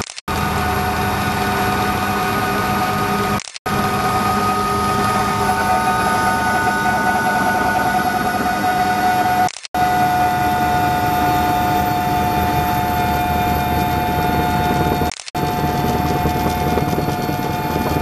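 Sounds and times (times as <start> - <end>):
rotor drone: 0.0 - 18.0
helicopter engine whine: 0.3 - 18.0
steady high tones: 3.8 - 17.8.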